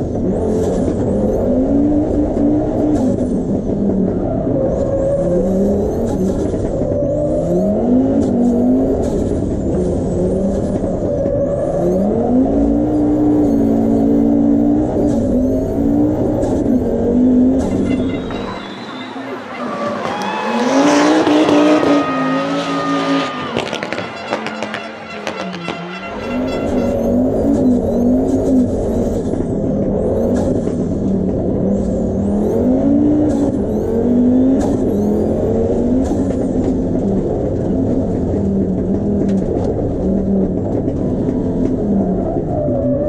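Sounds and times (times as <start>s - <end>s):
rally car engine revving: 0.0s - 43.0s
turbo whistles: 17.6s - 24.5s
exhaust pops: 23.2s - 26.8s.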